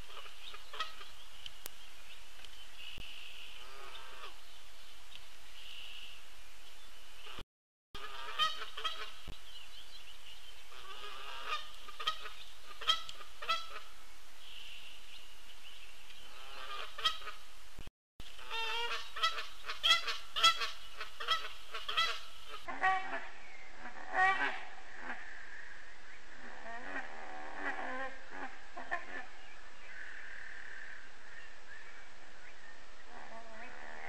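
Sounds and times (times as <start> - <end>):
geese honking: 0.1 - 1.1, 3.6 - 4.4, 8.0 - 9.2, 10.7 - 13.9, 16.3 - 17.4, 18.4 - 25.2.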